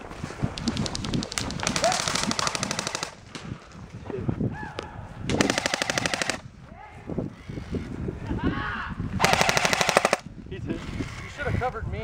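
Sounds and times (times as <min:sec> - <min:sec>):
airsoft gun full-auto bursts: 0:00.6 - 0:03.2, 0:05.4 - 0:06.4, 0:09.2 - 0:10.2.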